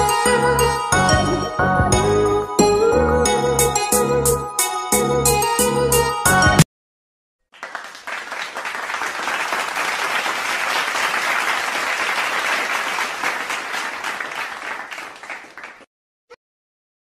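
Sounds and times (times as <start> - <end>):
crowd applauding: 7.5 - 15.9.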